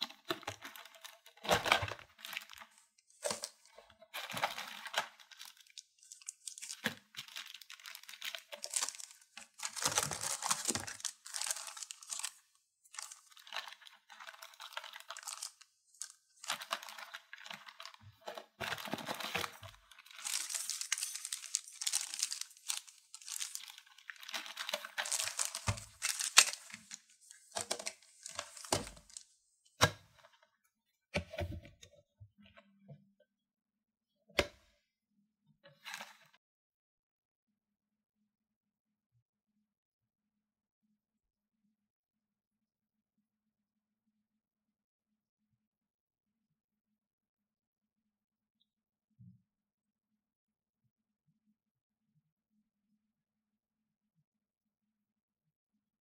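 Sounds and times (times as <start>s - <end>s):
plastic packaging crinkling: 0.2s - 29.4s
small plastic pieces clicking: 20.1s - 29.2s.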